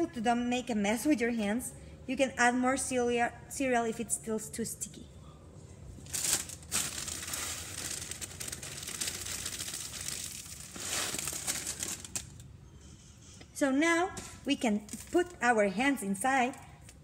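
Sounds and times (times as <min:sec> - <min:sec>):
plastic bag crinkling: 0:06.0 - 0:12.4
cereal pouring onto plate: 0:06.4 - 0:12.3.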